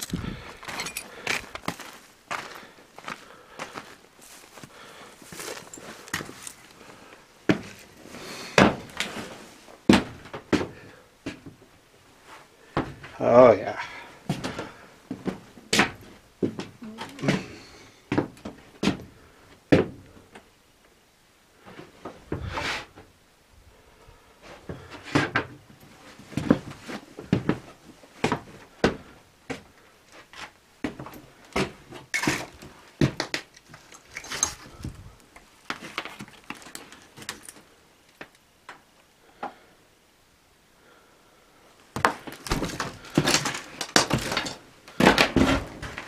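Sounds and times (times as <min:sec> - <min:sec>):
footsteps over debris: 0:00.0 - 0:11.6, 0:29.6 - 0:38.4, 0:41.9 - 0:46.0.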